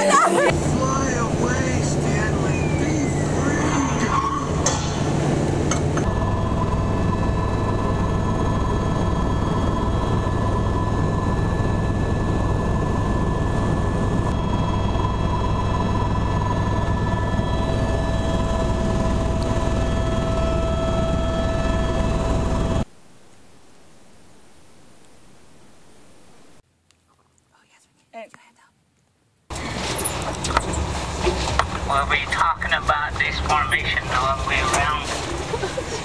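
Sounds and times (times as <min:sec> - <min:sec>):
road vehicle ride: 0:00.5 - 0:07.0, 0:29.5 - 0:36.0
aircraft engine drone in cabin: 0:00.5 - 0:26.6, 0:29.5 - 0:36.0.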